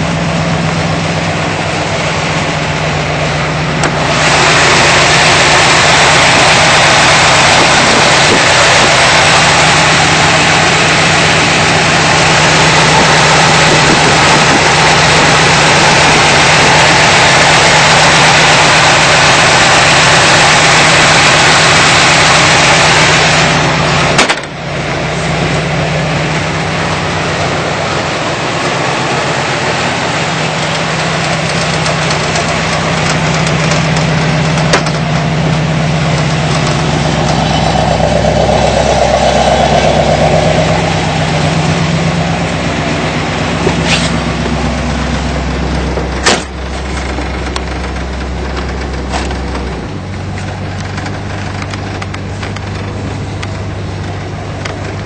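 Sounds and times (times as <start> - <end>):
loud rushing noise: 0.0 - 54.9
car engine idling: 0.0 - 55.0.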